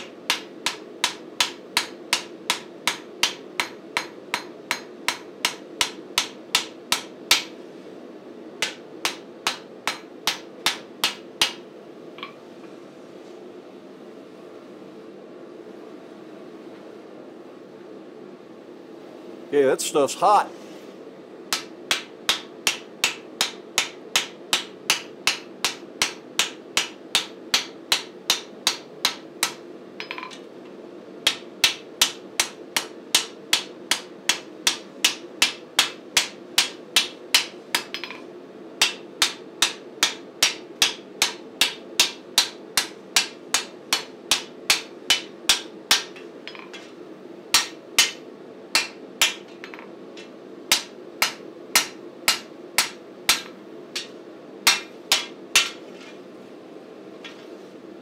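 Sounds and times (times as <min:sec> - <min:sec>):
hammer striking steel on anvil: 0:00.0 - 0:07.6, 0:08.6 - 0:11.6, 0:21.5 - 0:30.5, 0:31.3 - 0:46.9, 0:47.5 - 0:56.1
steady low hum: 0:00.0 - 0:58.0.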